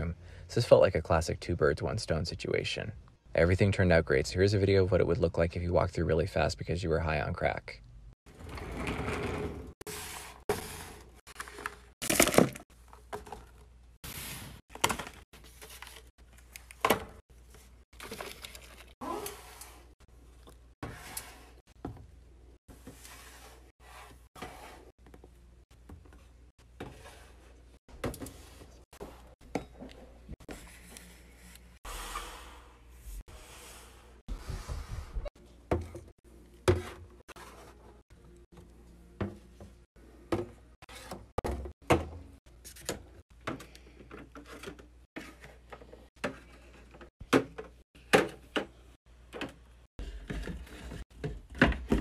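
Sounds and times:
plastic jars and bottles handled: 10.5s - 13.8s, 14.7s - 21.0s
household objects knocking and thudding: 34.3s - 37.0s, 41.3s - 42.3s, 47.2s - 52.0s.

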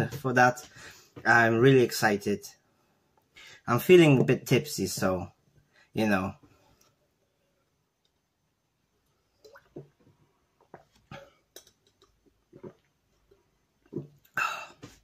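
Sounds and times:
person swallowing: 12.4s - 13.0s, 13.8s - 15.0s.

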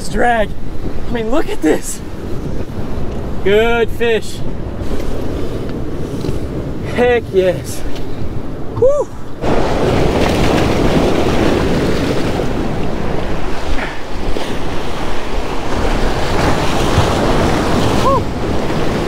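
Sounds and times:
wind rumbling on microphone: 0.0s - 19.0s
surf breaking over rocks: 9.4s - 19.0s.

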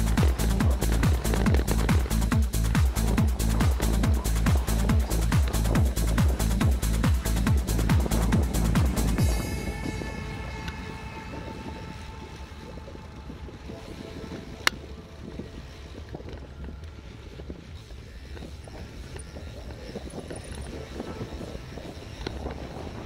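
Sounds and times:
electronic music: 0.0s - 15.8s
bike rattling and crackling: 0.0s - 23.0s
bike rumbling over dirt track: 0.0s - 23.0s.

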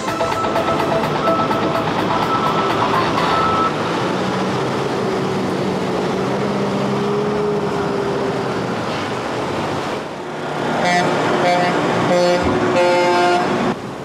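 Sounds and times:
music: 0.0s - 3.7s
truck diesel engine running: 0.0s - 12.0s.

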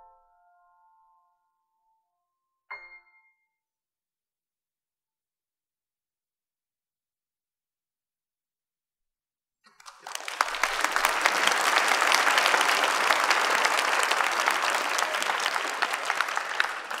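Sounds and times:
audience applauding: 9.7s - 17.0s.

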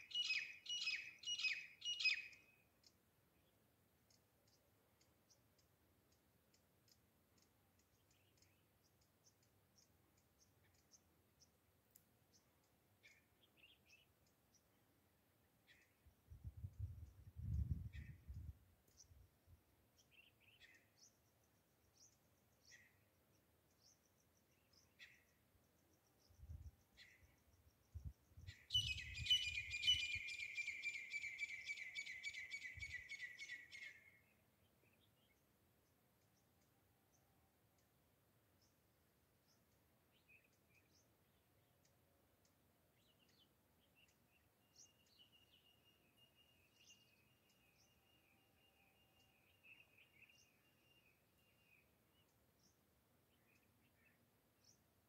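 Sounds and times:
faint high bird chirps: 0.0s - 11.6s, 15.6s - 19.3s, 20.0s - 35.5s, 42.9s - 55.0s
lower bird calls: 28.0s - 34.3s.

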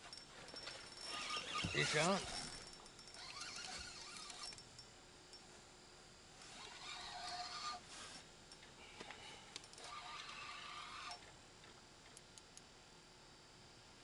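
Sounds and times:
fishing reel clicking and whirring: 0.1s - 4.9s, 6.5s - 8.2s, 9.6s - 11.3s.

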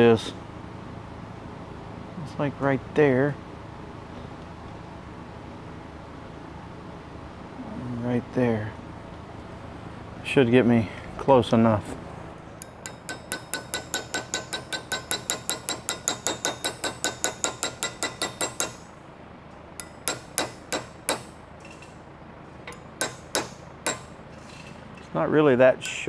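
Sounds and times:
hammer ringing on sheet metal: 12.6s - 18.9s, 19.8s - 21.4s, 23.0s - 24.1s.

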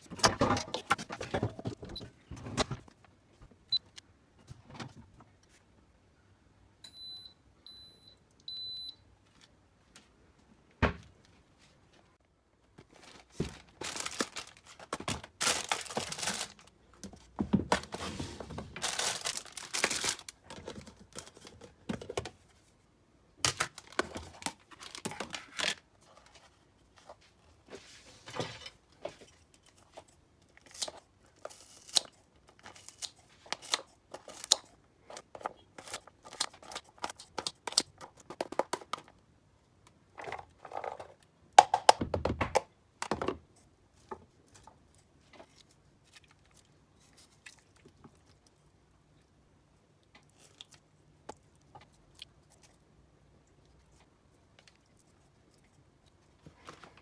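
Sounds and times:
plastic bag crinkling and tearing: 13.4s - 16.7s, 18.7s - 21.3s
plastic tubs clicking and tapping: 37.3s - 39.2s.

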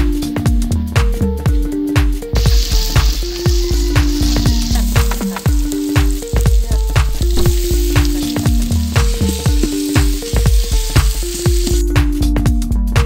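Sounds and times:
background music with beat: 0.0s - 13.0s
wooden spoon stirring: 2.4s - 11.8s
vegetables sizzling in oil: 2.4s - 11.9s.

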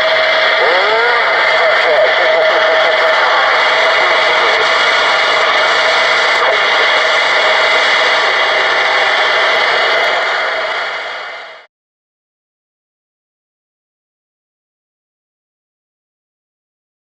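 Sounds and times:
radio static hiss: 0.0s - 11.7s
steady whistle-like tone: 3.6s - 11.7s.

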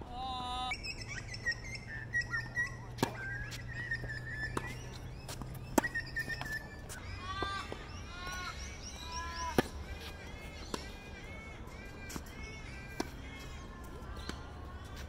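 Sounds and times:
birds singing: 0.4s - 15.0s
tennis ball struck by racquets: 2.9s - 6.7s, 9.4s - 11.0s, 12.9s - 13.2s.

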